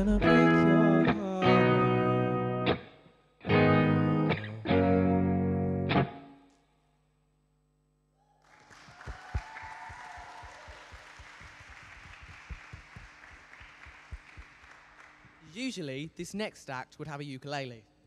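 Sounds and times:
applause: 8.4s - 15.8s.

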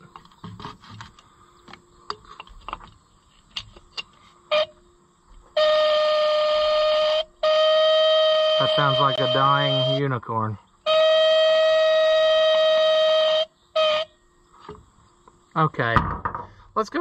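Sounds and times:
buzzy electric horn tone: 4.5s - 14.3s
horn blip: 5.6s - 10.1s.

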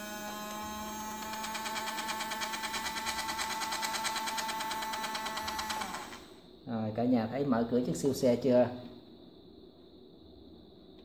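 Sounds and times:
toy electric motor whining: 0.0s - 6.4s
rapid gear ticking: 1.2s - 6.3s.

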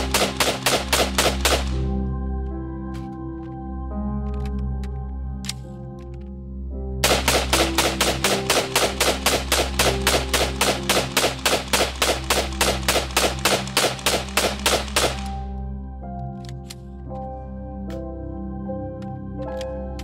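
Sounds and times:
rifle firing rapid shots: 0.0s - 1.8s, 7.0s - 15.3s.

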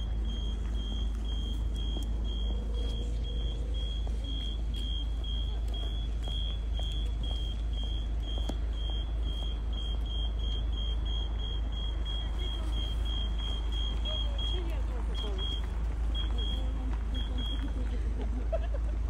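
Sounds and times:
crossing signal beeping: 0.0s - 17.9s
traffic rumble: 0.0s - 19.0s.

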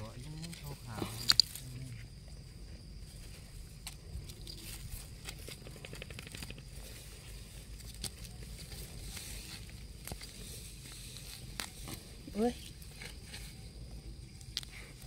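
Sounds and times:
metal spoon scraping in soil: 6.8s - 13.8s.

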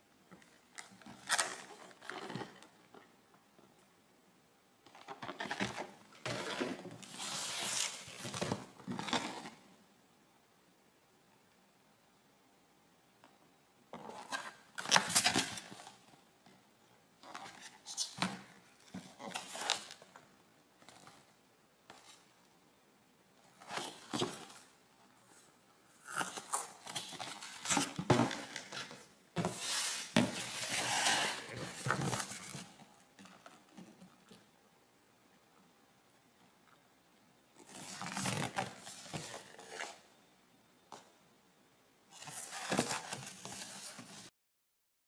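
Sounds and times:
cardboard boxes scraping and rustling: 5.2s - 9.6s, 26.1s - 32.8s, 42.2s - 44.3s.

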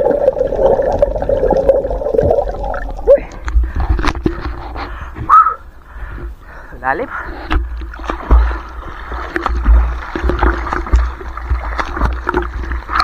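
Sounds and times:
water splashing against boat: 7.2s - 13.0s.

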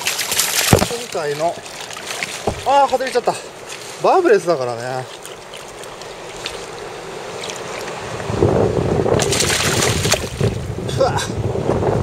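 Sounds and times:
river water rushing: 0.0s - 10.6s
burst of splashing: 9.2s - 10.5s.

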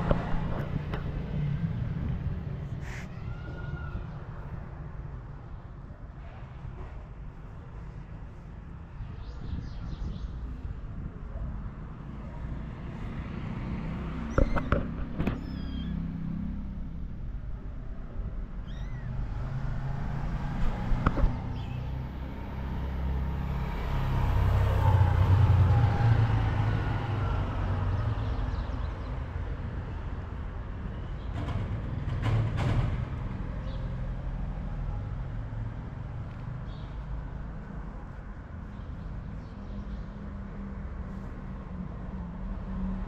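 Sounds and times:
low traffic rumble: 0.0s - 43.0s
vehicle passing: 11.9s - 17.4s, 18.8s - 28.4s
kittens mewing: 18.6s - 19.2s.

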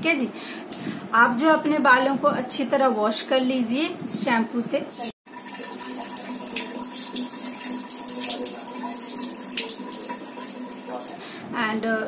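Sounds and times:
water splashing over wet hair: 5.5s - 11.2s.

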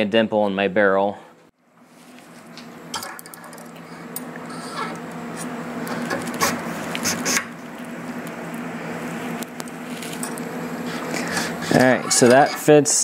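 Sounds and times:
steady low hum: 0.0s - 13.0s
metal parts rubbing and scraping: 9.9s - 12.8s.

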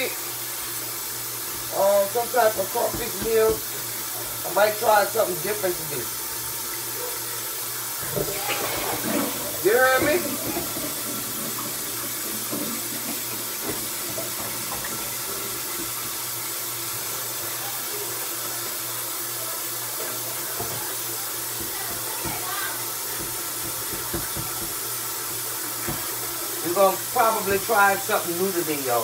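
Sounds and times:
tap running into sink: 1.4s - 6.9s, 7.8s - 16.4s, 20.0s - 27.8s
dishes knocking against sink: 23.1s - 24.8s.

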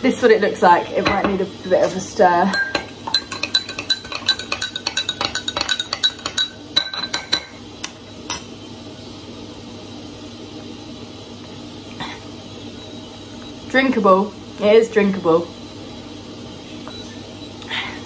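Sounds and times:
spoon clinking against glass: 2.5s - 7.6s.

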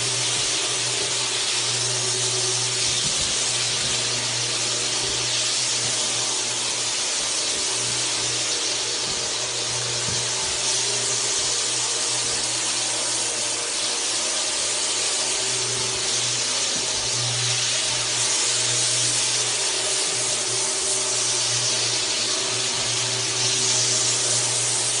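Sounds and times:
buffer pad hissing on wood: 0.0s - 25.0s
floor buffer motor hum: 0.0s - 25.0s.

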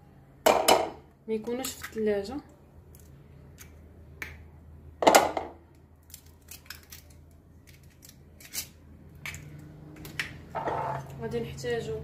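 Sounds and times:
eggshell cracking: 5.7s - 9.4s.

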